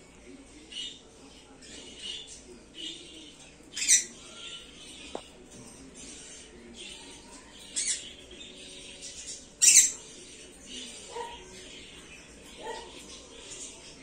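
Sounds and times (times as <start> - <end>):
parrot squawking: 9.6 - 10.0.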